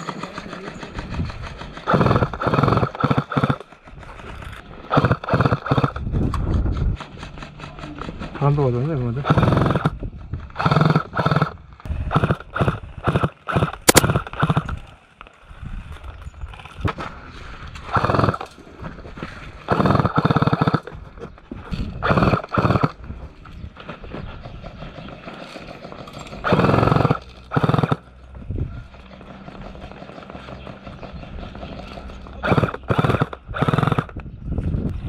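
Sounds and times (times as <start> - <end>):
airsoft gun firing bursts: 0.0 - 4.0, 4.9 - 6.1, 9.3 - 10.0, 10.6 - 14.8, 17.9 - 18.5, 19.7 - 20.9, 22.0 - 23.0, 24.4 - 28.1, 28.9 - 34.2.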